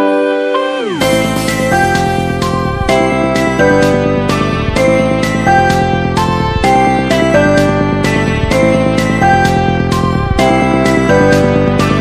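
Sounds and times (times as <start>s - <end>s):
background music with held chords: 0.0s - 12.0s.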